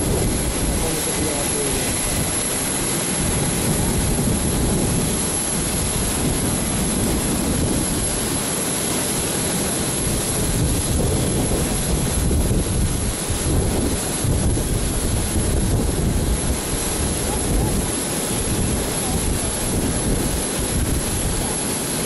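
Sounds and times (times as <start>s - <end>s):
jet engines rumbling and hissing: 0.0s - 22.0s.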